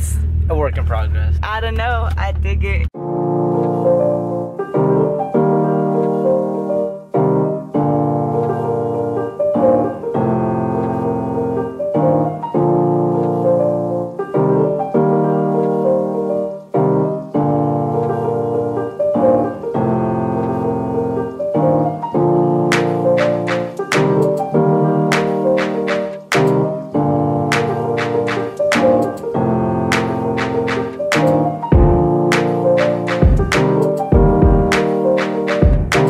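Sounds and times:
background music held chords: 0:03.0 - 0:36.0.

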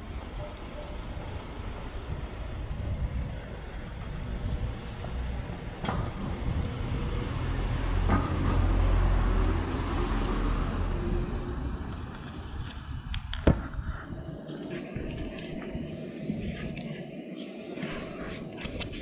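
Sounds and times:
motor vehicle rumble passing: 0:03.9 - 0:14.0.

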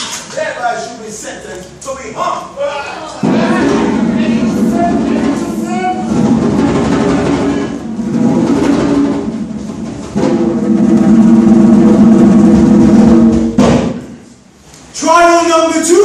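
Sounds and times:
rapid drumming: 0:03.2 - 0:14.2.

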